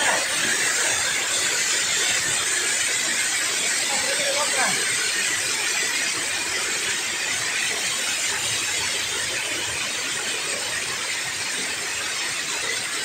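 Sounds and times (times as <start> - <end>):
river water pouring over weir: 0.0 - 13.0.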